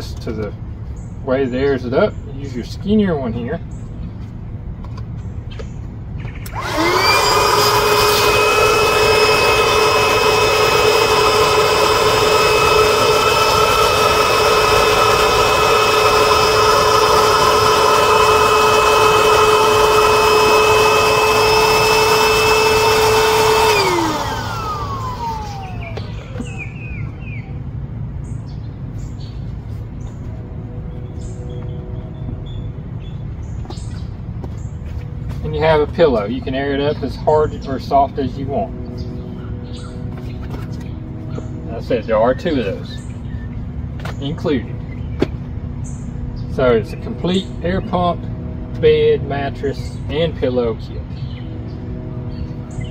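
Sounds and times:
electric air pump whining: 6.4 - 27.4, 37.8 - 52.9.

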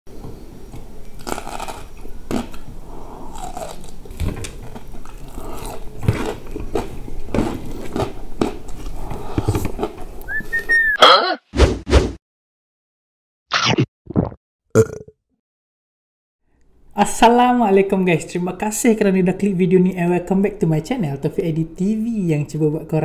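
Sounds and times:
man chewing and crunching food: 0.7 - 10.4.

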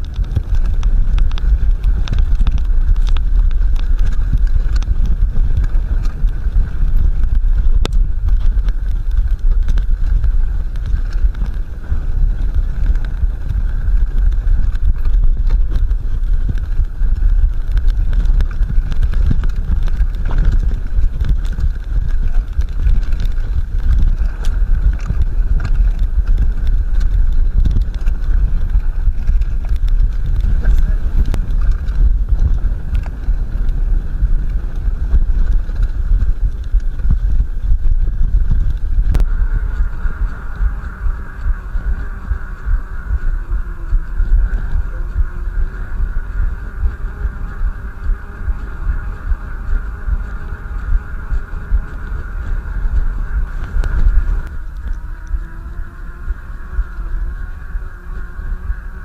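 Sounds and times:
bike clicks and knocks: 0.0 - 45.2
bike tyres rumbling over snow: 0.0 - 59.0
wind on microphone: 0.0 - 59.0.

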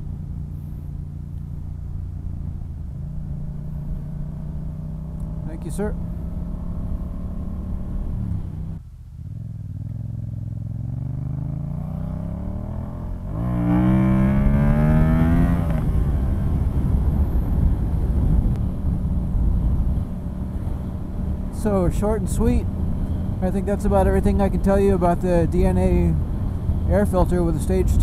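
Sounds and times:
motorcycle engine accelerating: 0.0 - 28.0
wind noise: 12.6 - 28.0.

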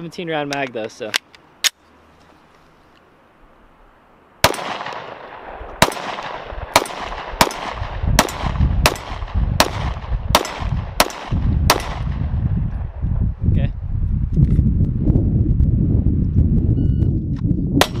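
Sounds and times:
pistol shots with echo: 4.4 - 12.3, 17.8 - 18.0
low rumble: 5.3 - 18.0.

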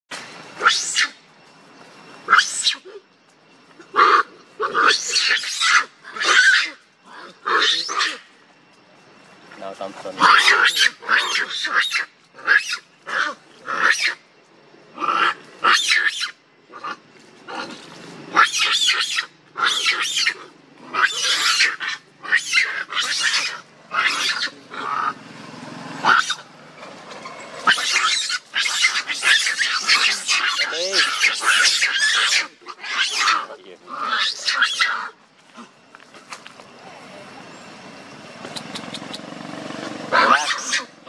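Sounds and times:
monkeys shrieking: 0.6 - 1.2, 2.3 - 3.0, 3.8 - 8.3, 10.2 - 14.2, 15.0 - 25.2, 26.0 - 26.5, 27.6 - 35.7, 40.1 - 41.0.

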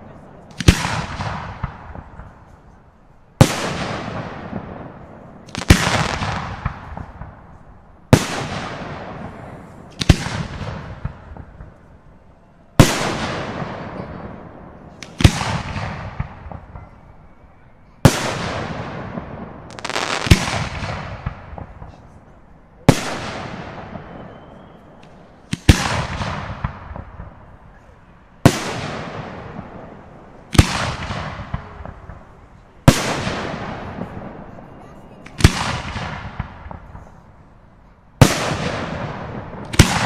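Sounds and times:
firework crackle: 3.4 - 11.8, 18.0 - 22.2
firework shells bursting: 19.7 - 21.9.

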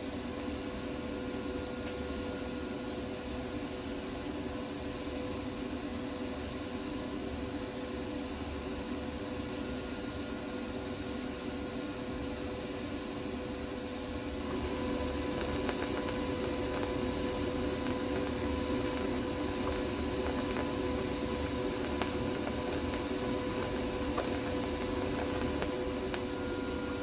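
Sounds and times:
spatter crackles: 0.0 - 26.2
welding arc hissing: 0.0 - 26.2.

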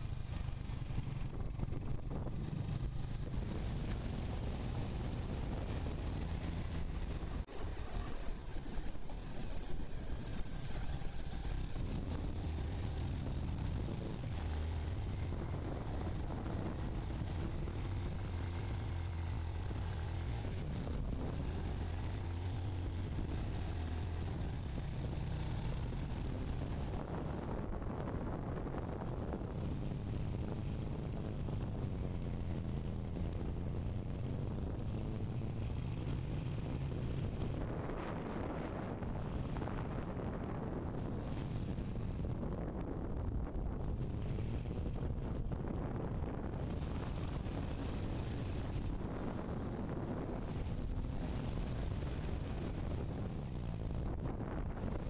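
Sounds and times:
motorcycle engine running: 0.0 - 55.0
wind and road noise: 0.0 - 55.0.

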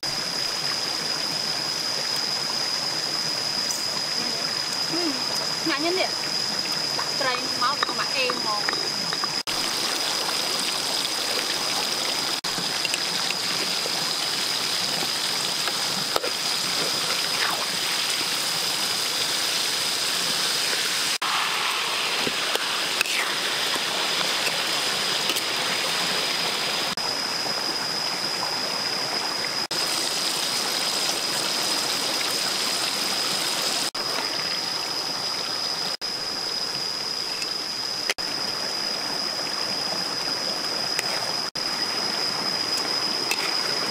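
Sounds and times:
fish sizzling in hot oil: 9.4 - 26.8.

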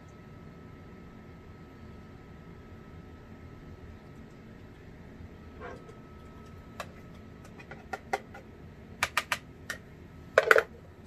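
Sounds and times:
faint high hum: 0.0 - 11.0
utensils clicking and tapping: 9.0 - 9.4.

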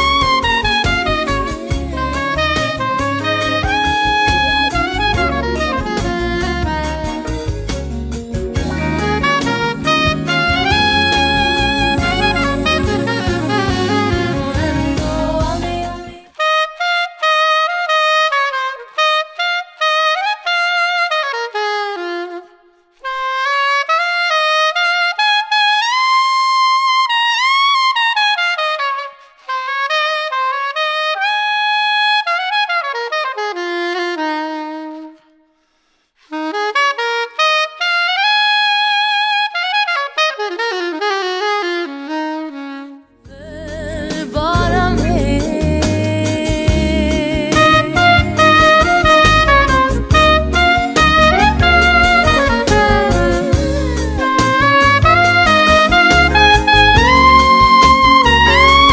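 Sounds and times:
backing track: 0.0 - 16.4, 43.2 - 58.9
soprano saxophone slow melody: 0.0 - 58.9.

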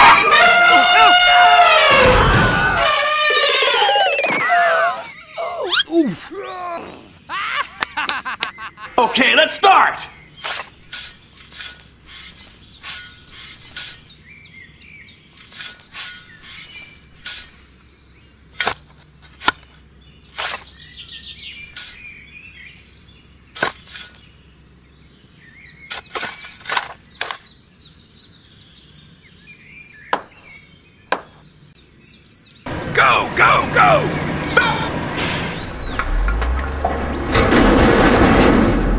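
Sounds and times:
birds chirping: 0.0 - 37.6
metal trowel scraping sand: 10.4 - 14.2, 15.4 - 17.7, 18.6 - 19.7, 20.3 - 20.7, 21.7 - 22.1, 23.6 - 24.3, 25.9 - 27.4.

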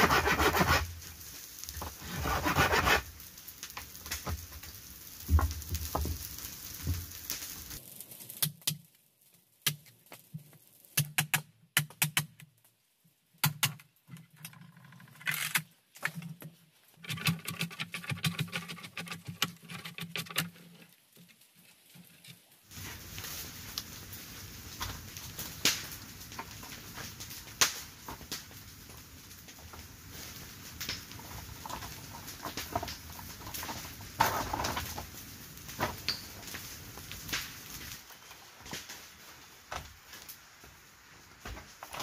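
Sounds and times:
saw scraping bamboo: 0.0 - 1.0, 1.8 - 3.2, 17.0 - 21.0.

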